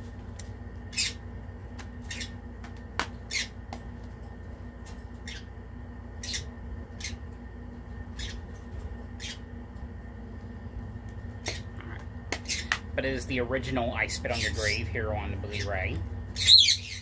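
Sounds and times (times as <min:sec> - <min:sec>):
birds squawking: 0:00.9 - 0:01.4, 0:02.0 - 0:02.5, 0:03.2 - 0:03.6, 0:05.2 - 0:07.3, 0:08.1 - 0:09.6, 0:11.4 - 0:11.8, 0:12.4 - 0:12.9, 0:13.8 - 0:17.0.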